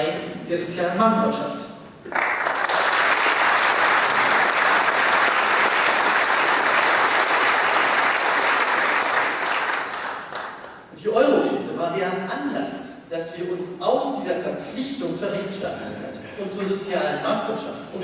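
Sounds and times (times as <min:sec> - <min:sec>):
audience applauding: 0:02.1 - 0:10.8.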